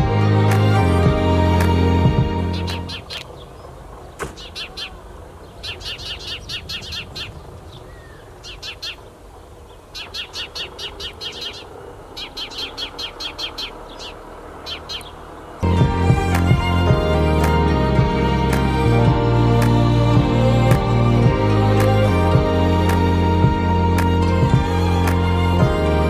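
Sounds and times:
sparrow chirping: 0:02.4 - 0:09.1, 0:09.7 - 0:15.9.

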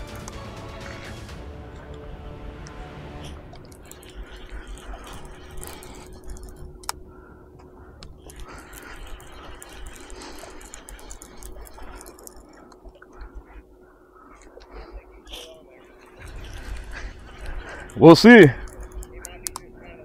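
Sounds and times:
fishing reel clicking and rattling: 0:03.6 - 0:07.0, 0:08.0 - 0:13.0, 0:16.2 - 0:19.7.

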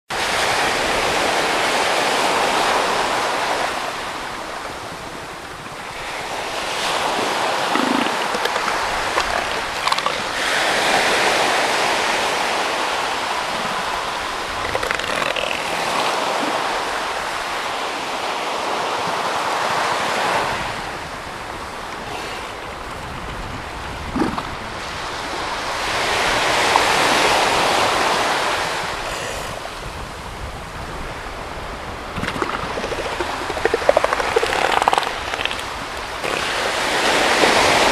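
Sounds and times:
ocean surf washing on beach: 0:00.1 - 0:37.9
elephant seal calls: 0:06.9 - 0:10.9, 0:32.2 - 0:37.0.

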